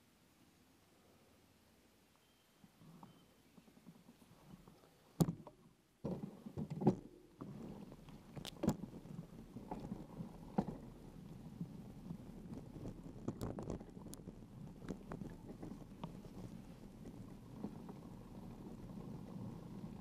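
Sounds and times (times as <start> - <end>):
bicycle rolling over dirt track: 6.0 - 20.0.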